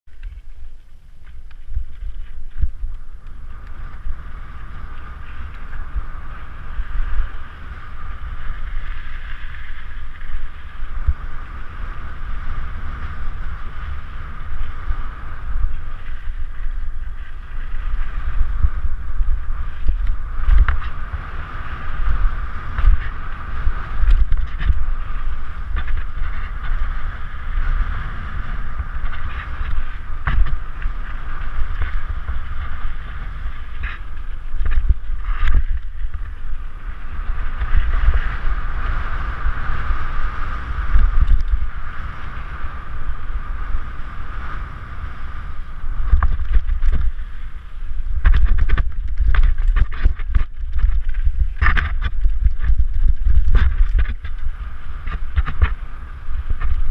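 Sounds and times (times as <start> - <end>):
bike tyres rumbling on dirt: 0.0 - 56.9
wind rushing on helmet: 0.0 - 56.9
bike knocking on bumps: 12.8 - 38.8, 48.1 - 56.9.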